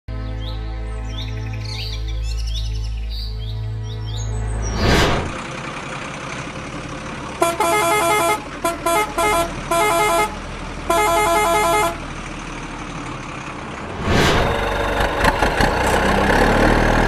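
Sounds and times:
truck horn honking: 7.2 - 12.2.

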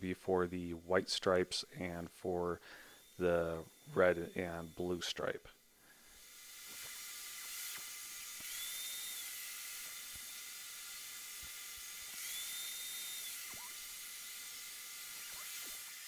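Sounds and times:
table saw whining: 6.1 - 16.0.

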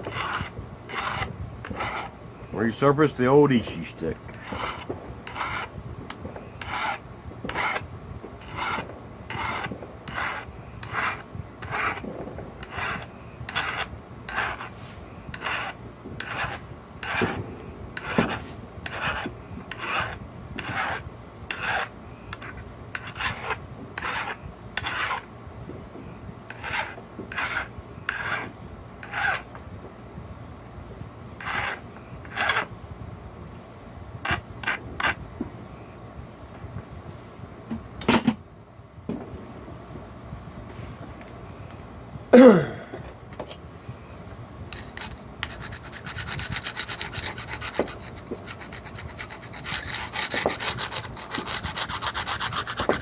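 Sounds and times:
metal file rasping on copper: 0.0 - 2.1, 4.3 - 5.7, 6.6 - 7.8, 8.4 - 12.0, 12.6 - 17.4, 18.0 - 25.2, 26.5 - 29.4, 31.4 - 32.7, 44.7 - 53.0.

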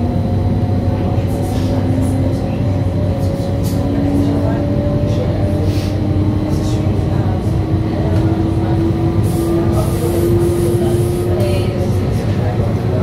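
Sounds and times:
low train running rumble: 0.0 - 13.0.

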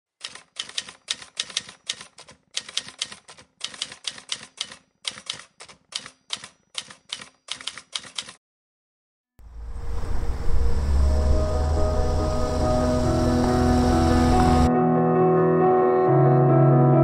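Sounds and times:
typewriter-like key clicks: 0.2 - 8.4.

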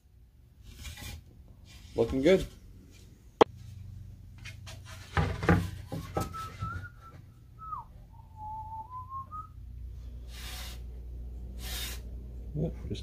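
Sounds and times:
wood rubbing: 4.4 - 7.2
man whistling a tune: 6.2 - 9.6.

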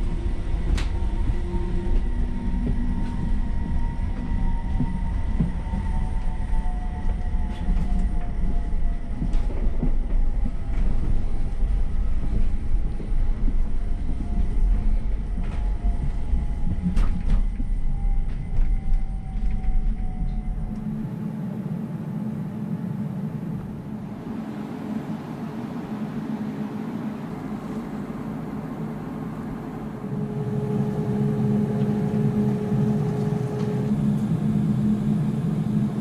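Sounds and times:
tram running gear rumble: 0.0 - 36.0
motor whine: 20.3 - 36.0.

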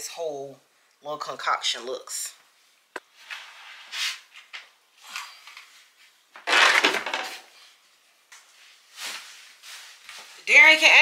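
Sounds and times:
clothes rustling: 8.2 - 11.0.

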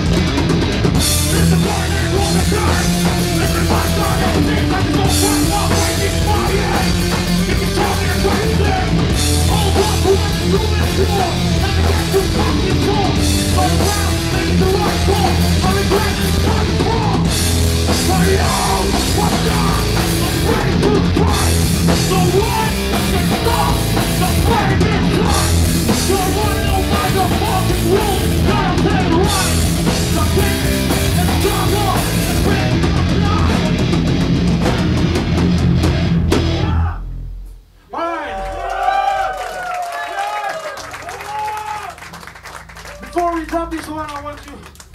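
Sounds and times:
distorted electric guitar and bass: 0.0 - 37.7
pounding drum kit: 0.0 - 37.7
shouted vocals: 17.9 - 33.7, 36.5 - 37.1, 37.9 - 42.1, 42.8 - 44.6.

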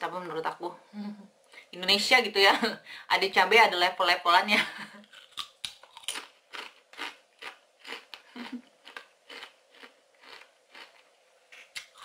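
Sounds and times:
crunchy chewing of chip: 5.0 - 12.0.

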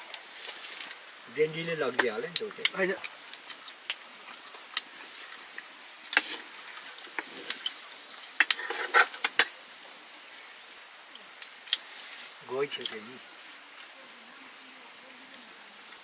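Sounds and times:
faint sizzle: 0.0 - 16.0
metal spatula scraping a wok: 6.1 - 9.5.

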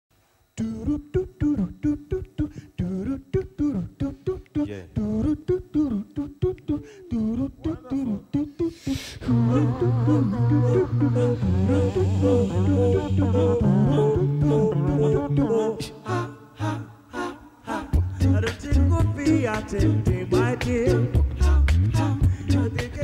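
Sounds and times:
low vocal bass line: 0.6 - 16.9, 17.8 - 23.0
male vocal group singing: 0.6 - 23.0
breathy hiss: 8.4 - 13.4.

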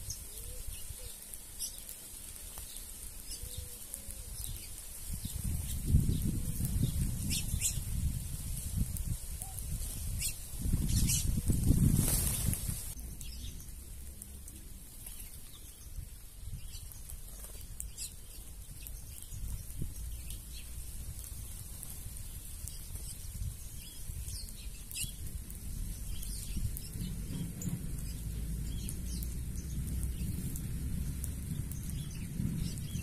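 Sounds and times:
small birds chirping: 0.0 - 33.0
low rumble: 25.3 - 33.0.

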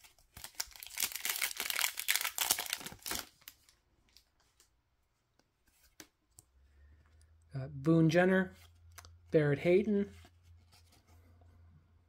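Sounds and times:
card pack wrapper tearing: 0.1 - 3.6.

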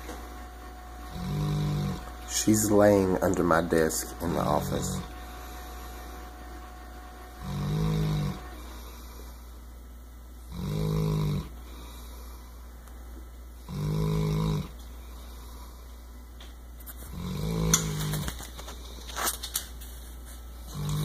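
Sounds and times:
dog snoring: 1.0 - 2.4, 7.4 - 9.1, 10.4 - 11.8, 13.6 - 14.8, 17.1 - 18.3, 20.7 - 21.0.

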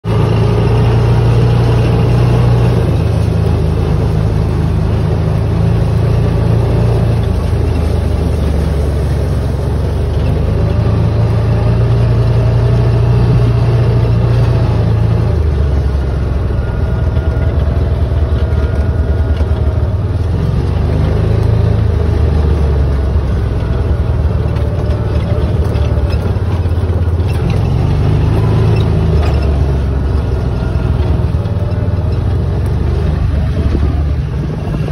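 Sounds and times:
tyres on gravel: 0.0 - 34.9
vehicle engine running: 0.0 - 34.9.

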